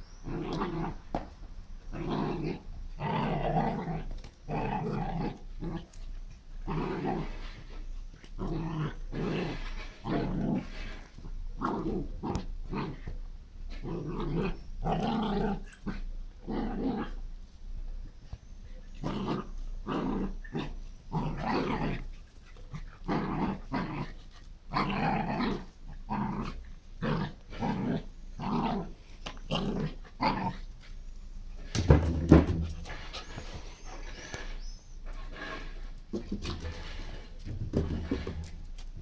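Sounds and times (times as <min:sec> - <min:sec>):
small dog growling and yapping: 0:00.2 - 0:01.2, 0:01.9 - 0:17.2, 0:18.9 - 0:31.0.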